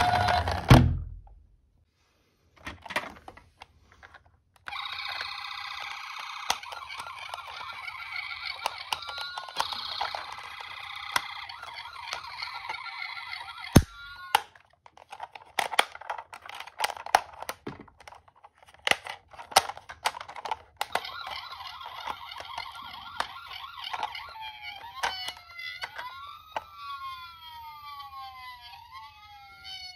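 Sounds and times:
toy siren warbling: 0:04.7 - 0:14.6, 0:20.3 - 0:29.9
plastic toy doors clicking: 0:06.4 - 0:26.8.

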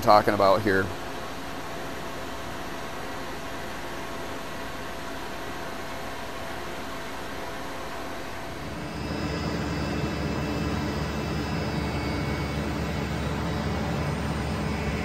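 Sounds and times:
machine-shop equipment humming: 0:08.4 - 0:15.0
heavy low rumble: 0:08.5 - 0:15.0.

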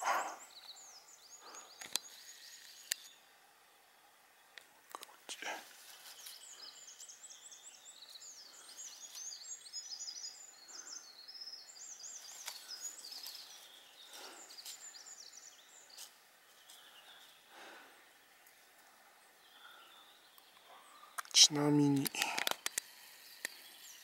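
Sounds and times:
small songbirds warbling: 0:00.0 - 0:24.0
faint clicks and rustles: 0:12.1 - 0:15.0, 0:22.0 - 0:23.8.

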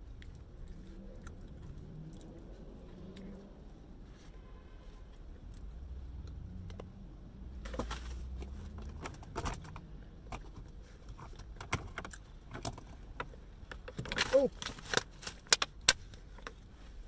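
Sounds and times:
person chewing biscuit: 0:00.0 - 0:03.5.

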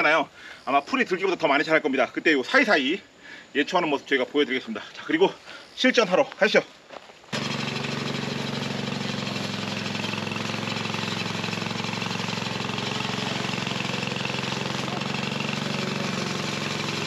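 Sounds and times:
mower cutting weeds: 0:07.3 - 0:17.0
mower engine running: 0:07.3 - 0:17.0.

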